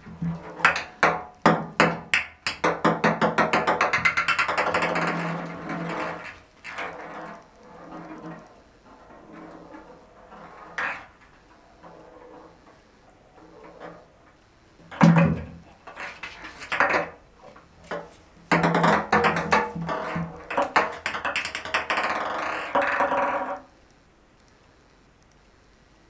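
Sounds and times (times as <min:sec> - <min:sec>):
ping pong ball rattling in bathtub: 0:00.1 - 0:08.5, 0:14.9 - 0:17.2, 0:17.9 - 0:23.7.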